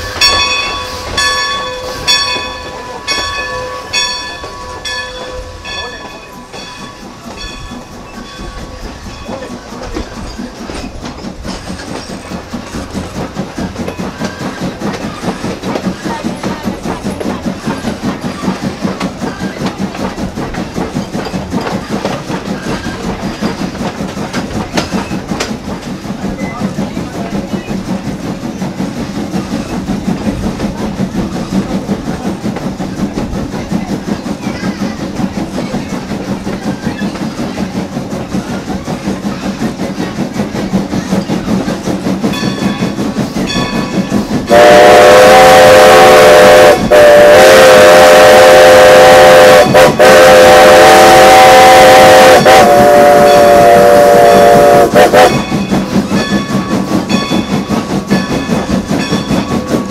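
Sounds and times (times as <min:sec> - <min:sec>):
steam locomotive chugging: 0:00.0 - 0:59.9
steam whistle chord: 0:44.5 - 0:55.4.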